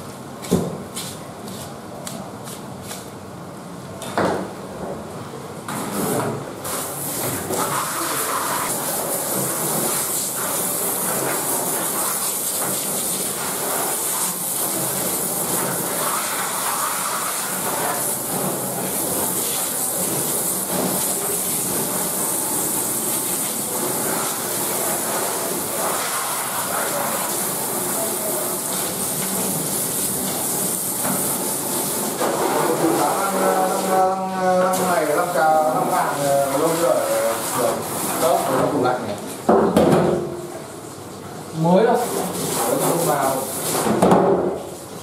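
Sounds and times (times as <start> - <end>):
water jet splashing: 6.6 - 39.2, 41.6 - 45.0.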